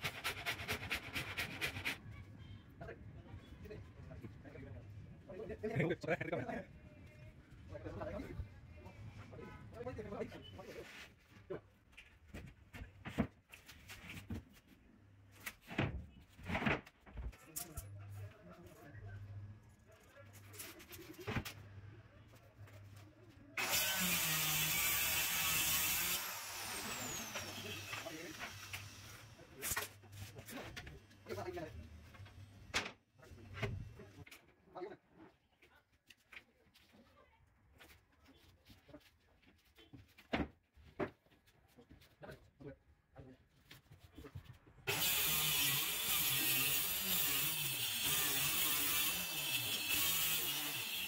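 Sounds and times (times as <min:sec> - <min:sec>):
circular saw cutting plywood: 0:23.6 - 0:29.9, 0:44.9 - 0:51.0.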